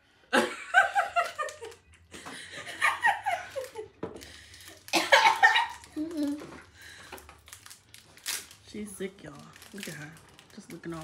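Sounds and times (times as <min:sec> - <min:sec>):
women laughing: 0:00.4 - 0:04.0.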